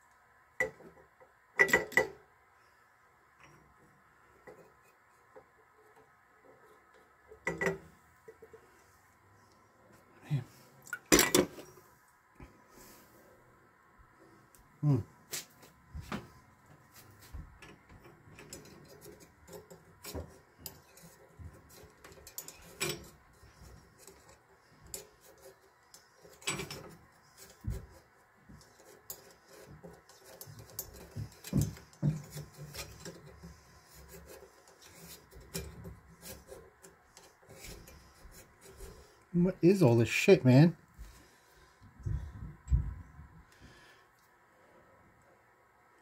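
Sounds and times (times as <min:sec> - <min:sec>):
screwdriver scraping inside pipe: 0:17.2 - 0:39.2.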